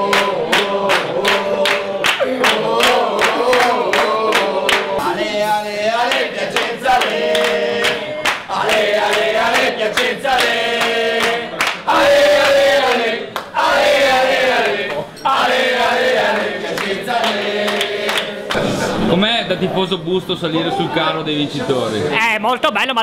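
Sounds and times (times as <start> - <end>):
people clapping in time: 0.0 - 5.1, 6.0 - 13.6, 16.0 - 18.7
fans singing a chant: 0.0 - 19.1.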